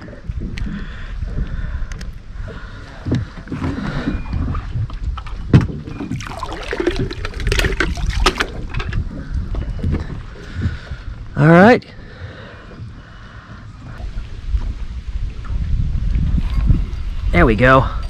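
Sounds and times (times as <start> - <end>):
wind rumble on microphone: 0.0 - 18.0
water splashing: 2.4 - 11.3.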